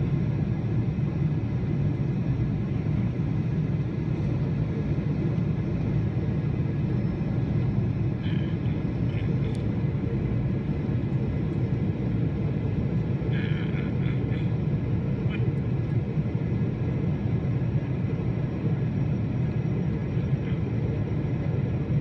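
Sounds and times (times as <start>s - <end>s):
jet engines rumbling: 0.0s - 22.0s.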